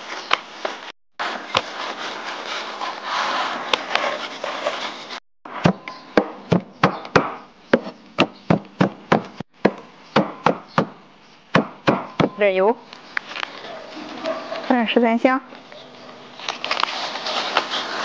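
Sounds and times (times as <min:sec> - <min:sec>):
cleaver chopping on wooden board: 0:05.6 - 0:11.0, 0:11.6 - 0:12.4.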